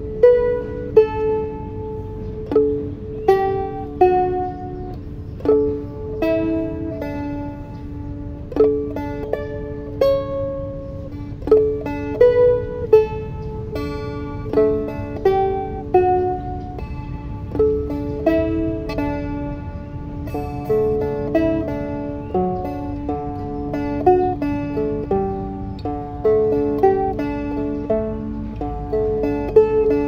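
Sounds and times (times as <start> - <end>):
stick dulcimer melody with drone: 0.0 - 30.0.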